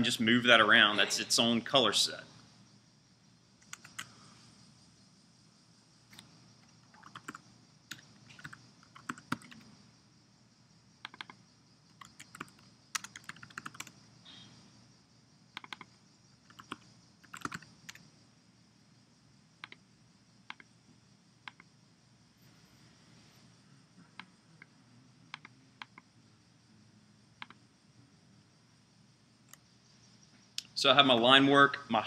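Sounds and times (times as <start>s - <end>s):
low hiss: 0.0s - 32.0s
computer keyboard typing: 3.6s - 4.1s, 6.1s - 9.7s, 11.0s - 14.0s, 15.6s - 18.0s.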